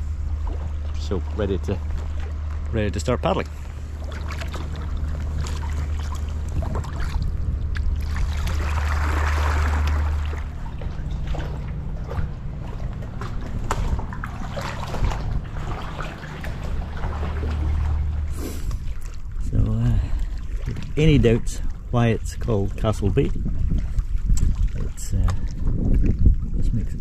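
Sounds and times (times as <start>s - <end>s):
paddle strokes splashing: 0.0s - 19.5s, 20.1s - 21.9s
low steady hum: 0.0s - 27.0s.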